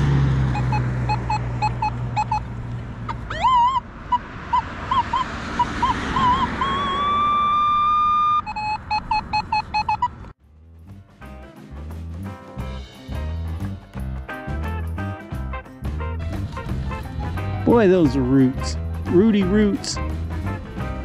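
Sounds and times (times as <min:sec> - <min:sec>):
metal detector short high beeps: 0:00.5 - 0:02.5, 0:06.2 - 0:10.2
metal detector wavering tone: 0:00.5 - 0:02.5, 0:03.3 - 0:10.2
guitar music: 0:10.5 - 0:21.0.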